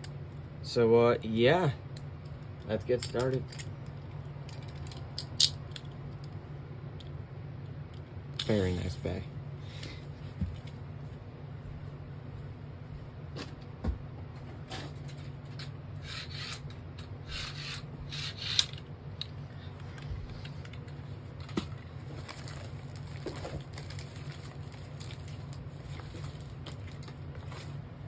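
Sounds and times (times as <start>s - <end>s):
steady low hum: 0.0s - 28.0s
plastic parts rubbing and clicking: 14.7s - 27.7s.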